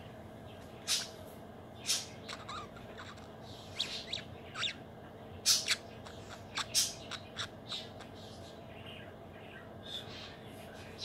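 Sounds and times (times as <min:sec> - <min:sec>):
budgerigar chirps and squawks: 0:00.8 - 0:01.2, 0:01.8 - 0:04.8, 0:05.4 - 0:08.4.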